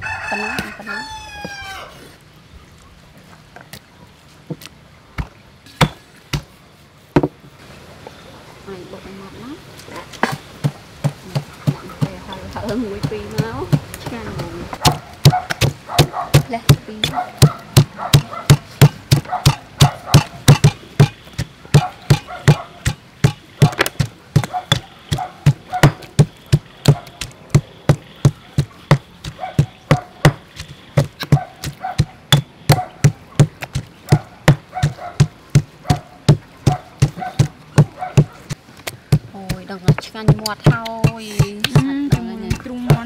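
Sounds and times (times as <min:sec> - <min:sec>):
stone pestle pounding in mortar: 0:10.2 - 0:38.5, 0:39.1 - 0:43.0.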